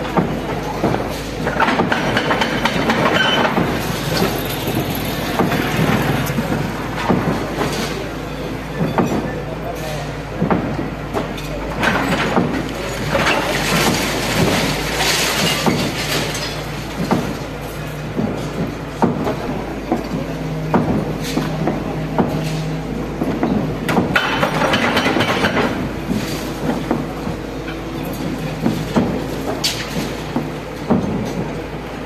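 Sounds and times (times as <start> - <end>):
masonry and rubble clattering down: 0.0 - 10.6, 11.2 - 31.7
excavator diesel engine running: 0.0 - 32.0
rush of falling debris: 11.8 - 18.7.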